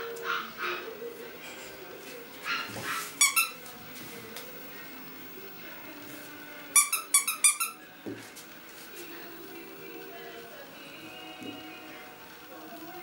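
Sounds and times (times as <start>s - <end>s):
squeaky dog toy squeaking: 3.2s - 3.6s, 6.8s - 7.8s.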